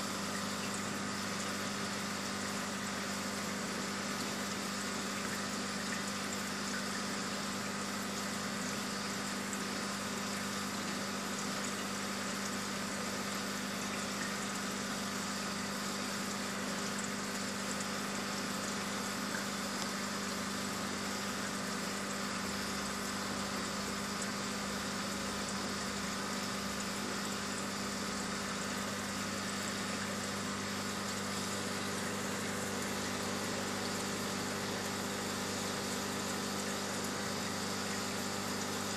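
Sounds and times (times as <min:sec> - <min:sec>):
aquarium pump hum: 0:00.0 - 0:38.9.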